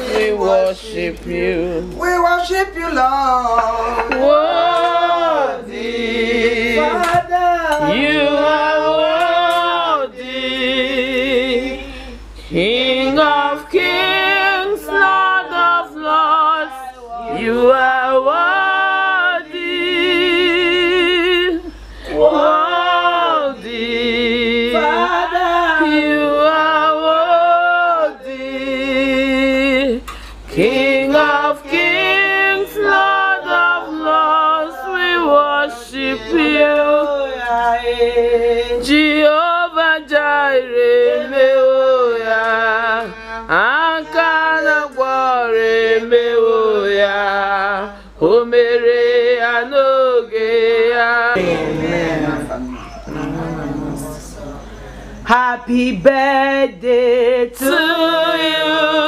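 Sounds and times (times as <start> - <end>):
woman singing unaccompanied: 0.0 - 54.5, 55.2 - 59.0.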